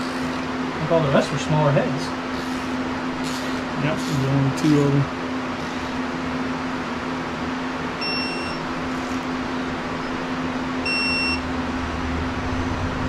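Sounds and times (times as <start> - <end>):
torque wrench beeping: 0.0 - 0.4, 2.3 - 5.0, 5.6 - 6.0, 8.0 - 9.3, 10.8 - 11.4
steady low hum: 0.0 - 13.0.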